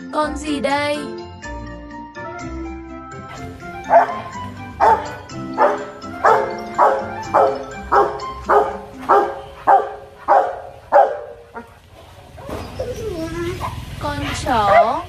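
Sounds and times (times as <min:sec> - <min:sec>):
dog barking: 0:03.3 - 0:12.8, 0:13.6 - 0:13.9, 0:14.6 - 0:15.0.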